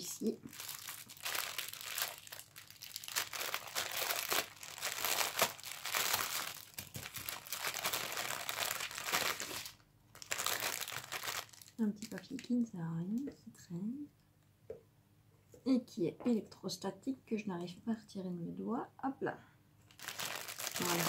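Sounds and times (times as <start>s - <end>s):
plastic bag crinkling: 0.0s - 12.6s, 19.8s - 21.0s.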